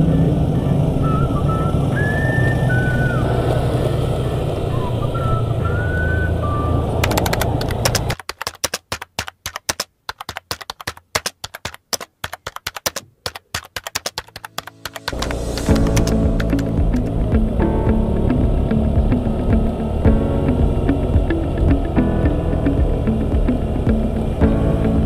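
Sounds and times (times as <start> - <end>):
motorcycle engine: 0.0 - 8.2, 14.6 - 25.0
road noise: 0.0 - 8.2, 14.2 - 25.0
keyboard typing clicks: 7.0 - 17.1.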